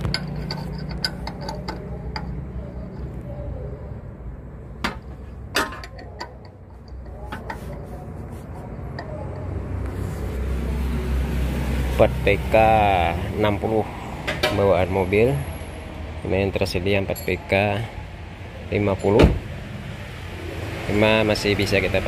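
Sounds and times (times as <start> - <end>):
metal tool clicks and knocks: 0.0 - 3.1, 4.8 - 7.8.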